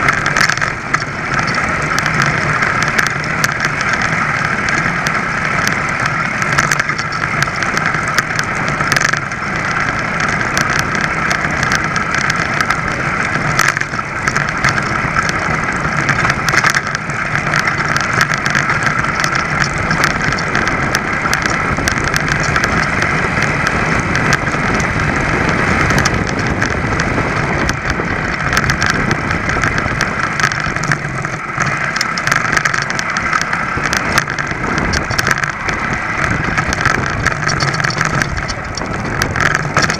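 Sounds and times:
light clicks and rattles: 0.0 - 39.9
moped two-stroke engine running: 0.0 - 39.9.

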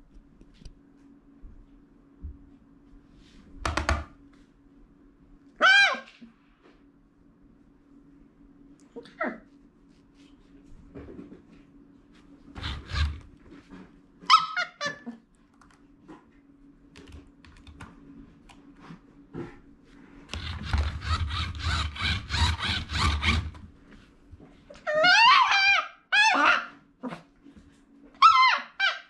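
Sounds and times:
toy wheels clattering on carpet: 20.4 - 23.5.

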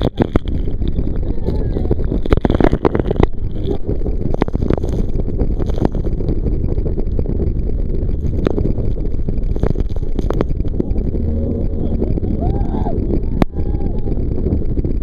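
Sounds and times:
wind on microphone: 0.0 - 15.0.

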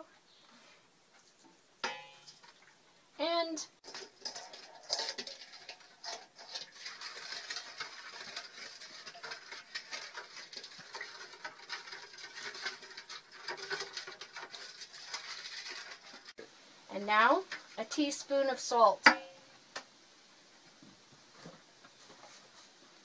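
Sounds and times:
spoon stirring in metal bowl: 3.8 - 16.4.

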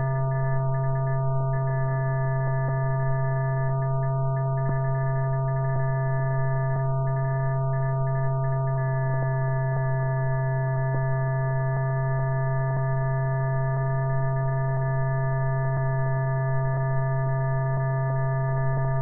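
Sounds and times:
low electrical hum: 0.0 - 8.8.

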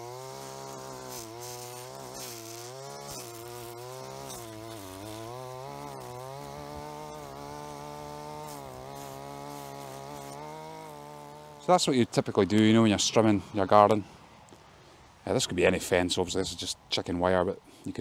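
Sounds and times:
string trimmer cutting grass: 0.0 - 11.9.

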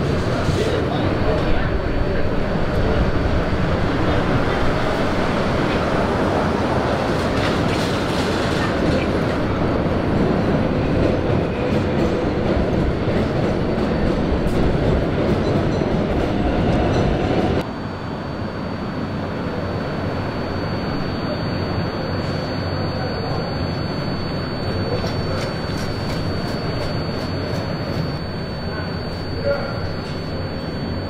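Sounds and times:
elevated train rumbling: 0.0 - 31.0
street noise: 0.0 - 31.0
faint high whine: 17.6 - 31.0.

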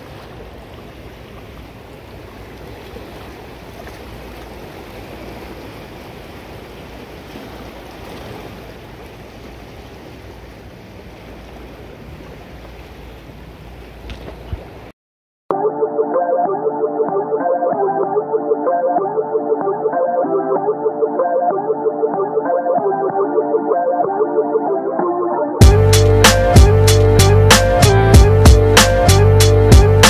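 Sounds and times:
river water rushing: 0.0 - 14.9.

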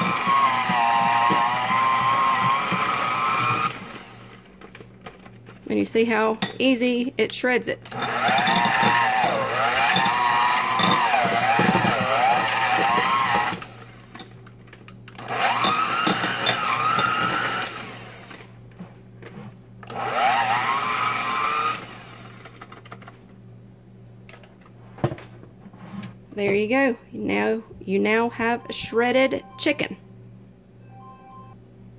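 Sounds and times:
electric hand mixer motor whine: 0.0 - 4.4, 7.9 - 14.0, 15.2 - 18.5, 19.9 - 22.6.

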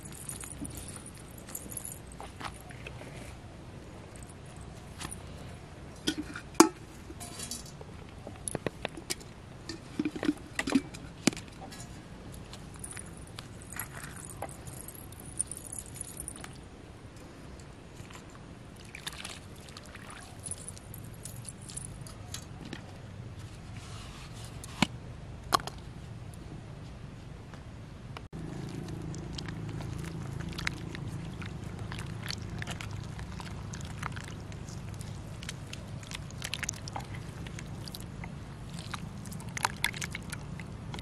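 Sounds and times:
metal pots clinking and knocking: 6.0 - 7.8.

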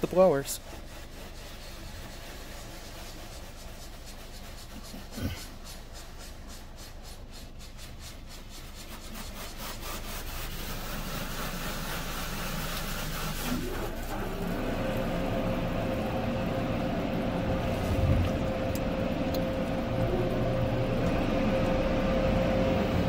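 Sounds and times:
air dryer blowers rushing: 10.4 - 23.0.

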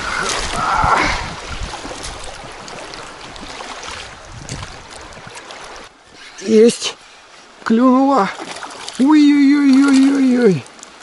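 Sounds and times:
river current rushing: 0.0 - 11.0
water lapping against inflatable hull: 0.0 - 11.0.

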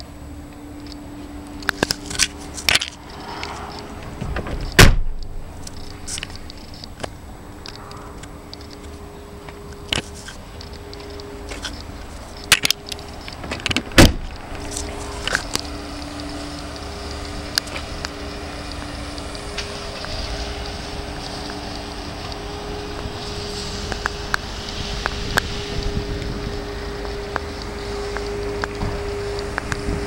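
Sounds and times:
low rumble: 0.0 - 30.0
car door shutting: 3.2 - 5.6, 13.4 - 15.6.

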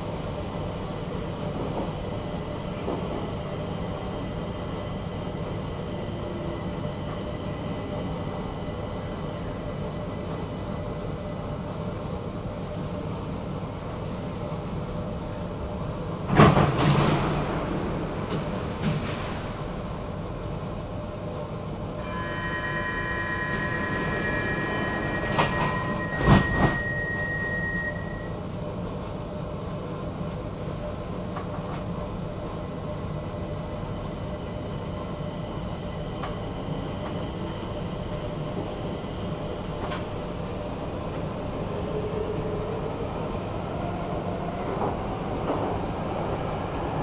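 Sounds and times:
train wheels rumbling on rails: 0.5 - 8.4, 13.6 - 20.2, 23.0 - 47.0
high multi-pitch whine: 21.8 - 28.3.

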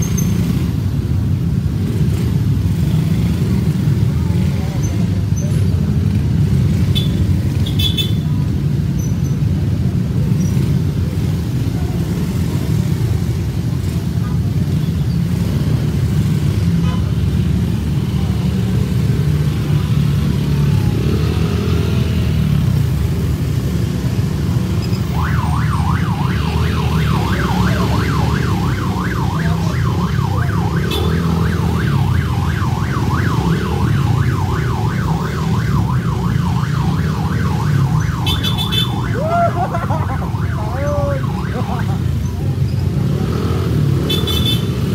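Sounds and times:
motorcycle engines running: 0.0 - 44.9
fast yelping siren: 25.0 - 42.2.

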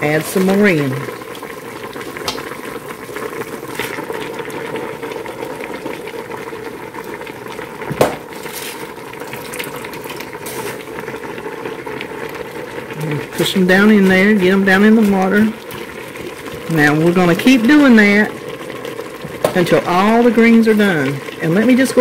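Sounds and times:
water boiling in a pot: 0.0 - 22.0
sharp knock: 7.9 - 8.2.

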